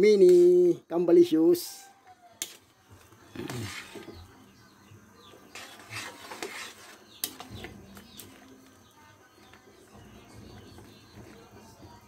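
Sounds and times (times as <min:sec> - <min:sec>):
metal ladle scraping a wok: 0:03.3 - 0:04.3, 0:05.5 - 0:08.4.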